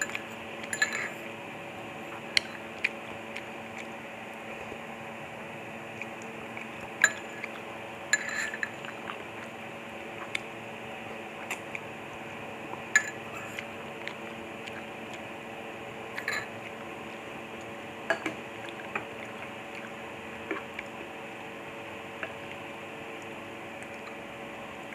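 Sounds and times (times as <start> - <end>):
cutlery clinking on bowl: 0.0 - 1.2, 7.0 - 7.5, 8.2 - 8.8, 12.9 - 13.2, 16.2 - 16.5
background hum: 0.0 - 24.9
slurping and chewing: 0.0 - 24.9.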